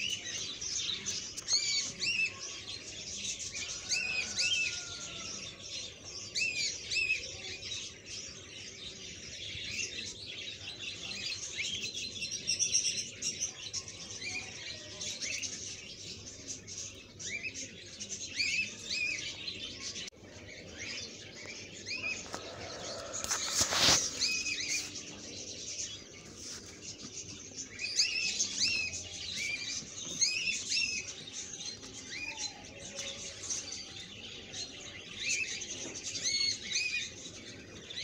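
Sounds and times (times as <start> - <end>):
birds chirping: 0.0 - 38.0.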